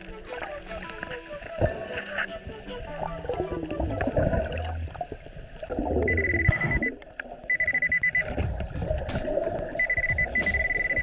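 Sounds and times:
metal detector beeping: 6.1 - 8.4, 9.8 - 11.0.

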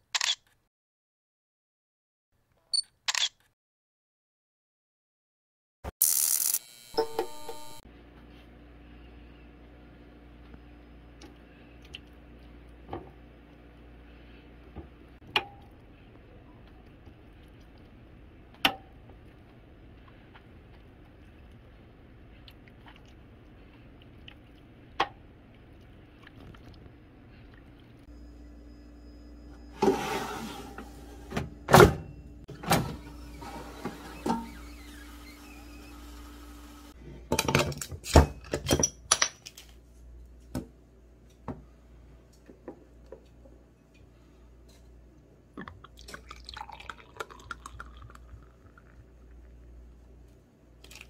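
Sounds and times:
air fryer humming: 28.1 - 37.2.

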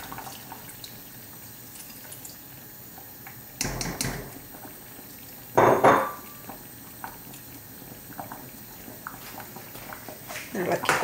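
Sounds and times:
ceramic bowl clattering on pot: 5.6 - 6.2.

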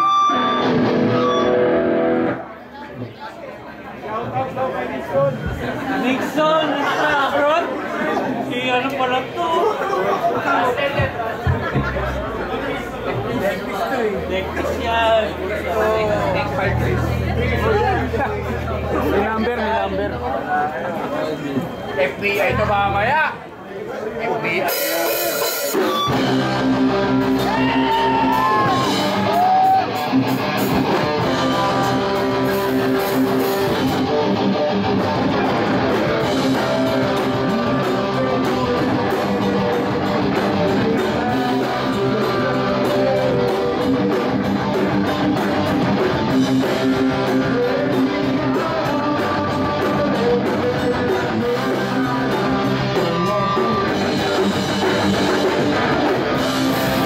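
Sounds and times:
electric guitars ringing chords: 0.0 - 2.5, 14.3 - 20.5, 24.7 - 57.0
live rock band music: 0.0 - 2.6, 10.9 - 23.2, 24.6 - 57.0.

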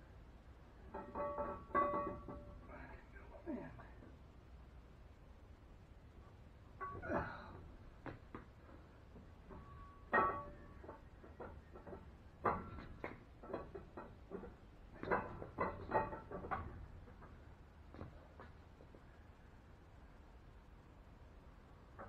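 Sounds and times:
metallic clinks and knocks: 0.8 - 2.7, 9.1 - 18.5.

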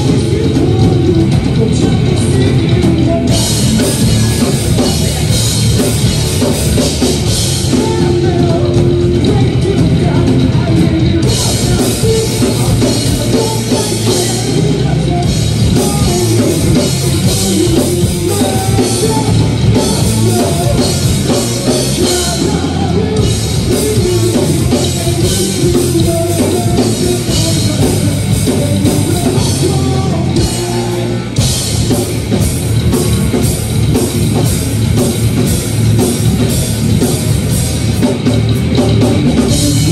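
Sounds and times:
person singing: 0.0 - 6.6, 7.5 - 31.5, 39.2 - 39.9
drum kit: 0.0 - 39.9
electric guitars: 0.0 - 39.9.

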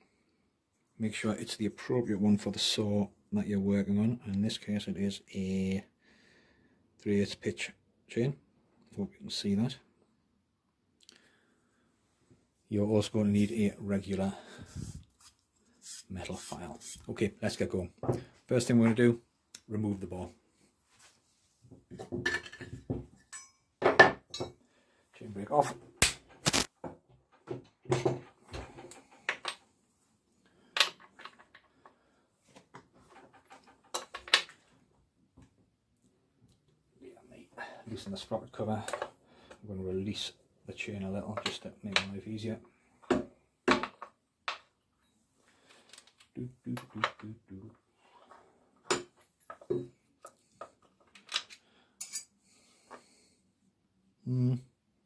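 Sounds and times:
wrench clinking on metal: 23.2 - 23.7, 51.3 - 52.3.

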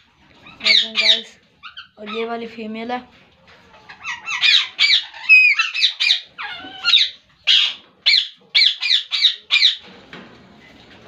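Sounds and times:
parakeets squawking: 0.4 - 2.5, 3.9 - 9.8.

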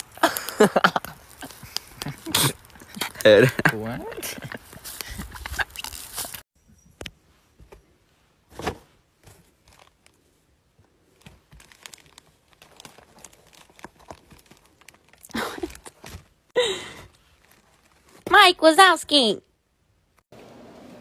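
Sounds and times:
plastic wrapping crinkling: 0.0 - 6.4, 9.6 - 10.2, 11.2 - 16.4, 17.1 - 18.3.

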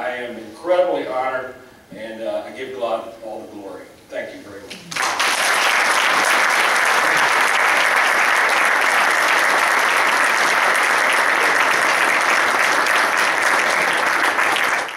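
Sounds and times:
audience applauding: 4.9 - 14.9.

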